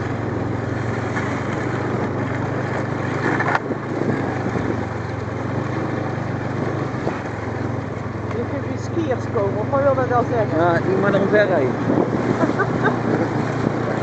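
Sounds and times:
snowmobile engine running: 0:00.0 - 0:14.0
broad rushing noise: 0:10.2 - 0:14.0.

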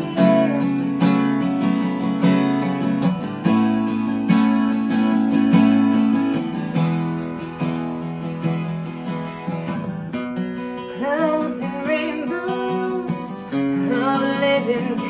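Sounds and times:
person singing: 0:00.0 - 0:01.2, 0:10.9 - 0:15.0
acoustic guitar strumming: 0:00.0 - 0:15.0.

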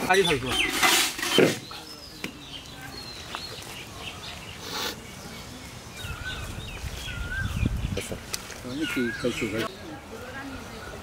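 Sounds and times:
small birds chirping: 0:00.0 - 0:11.0
steel ladle scraping steel tray: 0:00.2 - 0:01.7.

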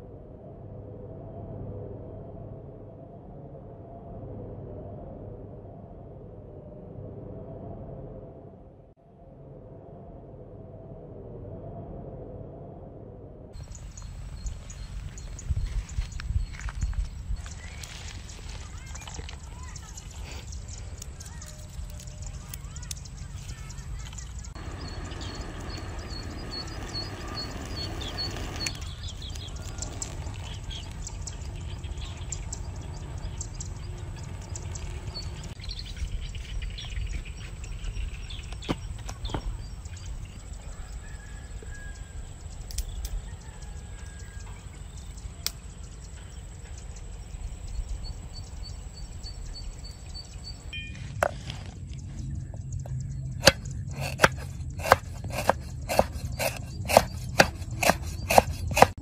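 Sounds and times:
low steady rumble: 0:00.0 - 0:38.6, 0:44.6 - 0:55.9
small bird chirping: 0:13.6 - 0:59.0
knife chopping on wooden block: 0:53.4 - 0:59.0.

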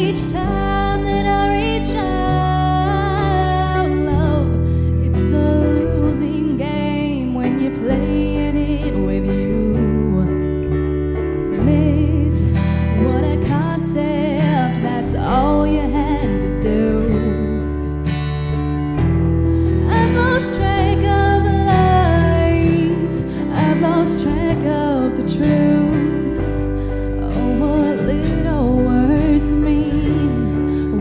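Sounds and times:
woman singing: 0:00.0 - 0:10.7, 0:11.4 - 0:18.0, 0:19.6 - 0:31.0
acoustic guitar: 0:00.0 - 0:31.0.

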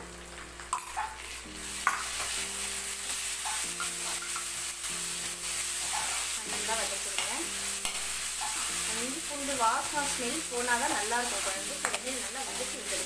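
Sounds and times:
onions sizzling in a pan: 0:00.0 - 0:13.0
ladle stirring and scraping: 0:05.2 - 0:06.5.

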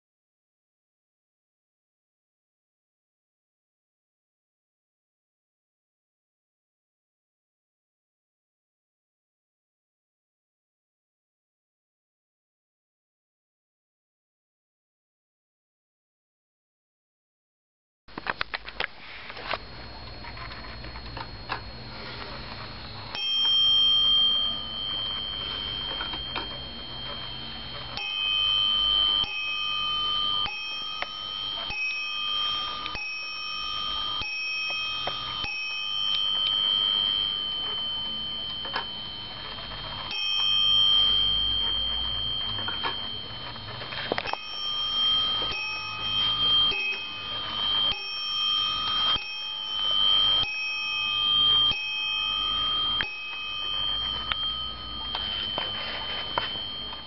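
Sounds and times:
wall clock striking bell: 0:22.1 - 0:57.0.

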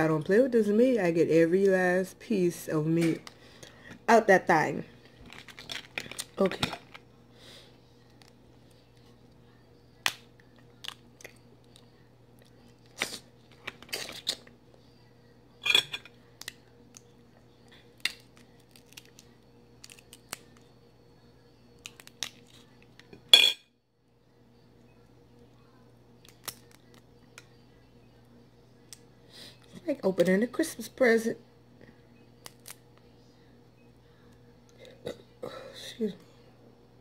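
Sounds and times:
low electrical hum: 0:00.0 - 0:37.0
crab shell cracking: 0:18.0 - 0:20.6, 0:26.2 - 0:27.0.

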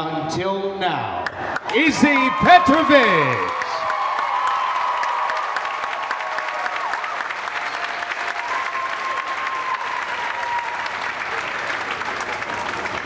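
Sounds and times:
large audience applauding: 0:01.6 - 0:13.0.

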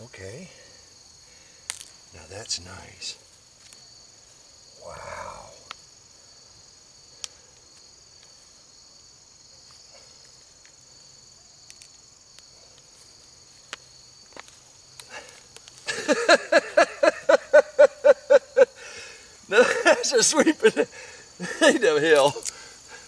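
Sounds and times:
crickets trilling: 0:00.0 - 0:23.0.

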